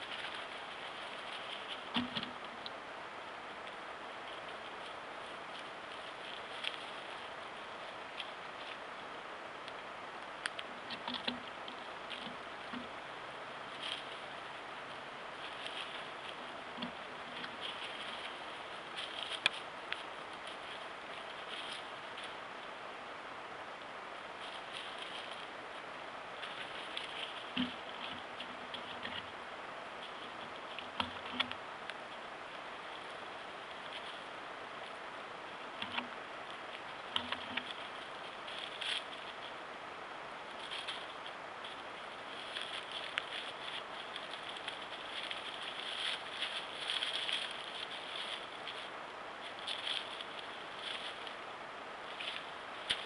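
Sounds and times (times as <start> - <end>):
soft taps and rustles: 0.0 - 2.8, 10.4 - 13.0
faint ticks and rustles: 0.0 - 53.0
microphone hiss: 0.0 - 53.0.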